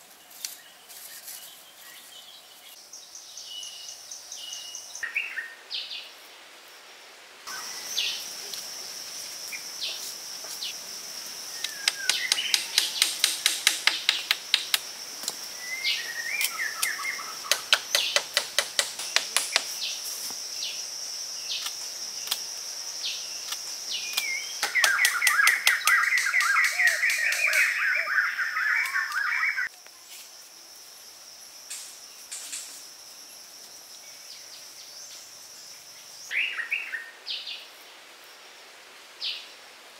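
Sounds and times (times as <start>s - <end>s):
high insect drone: 6.1s - 36.4s
birds chirping and calling: 11.4s - 20.0s, 23.9s - 29.7s
sharp clicks: 11.6s - 15.4s.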